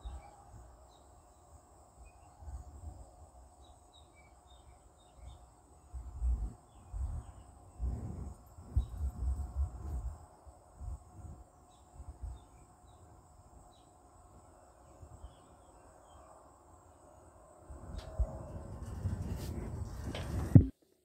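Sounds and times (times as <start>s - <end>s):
faint bird chirps: 0.0s - 2.9s, 3.6s - 7.6s
insect drone: 0.0s - 20.7s.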